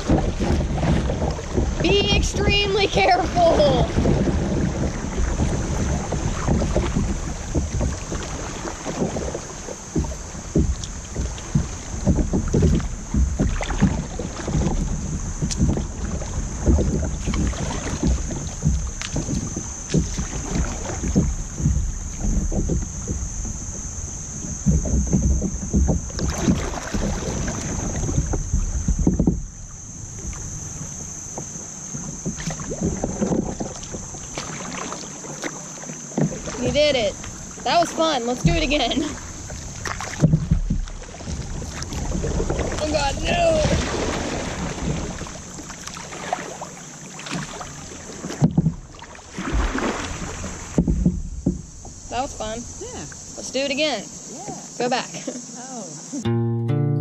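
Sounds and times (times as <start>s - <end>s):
wind buffeting microphone: 0.0s - 34.4s, 36.2s - 45.7s
river water splashing against hull: 0.0s - 56.2s.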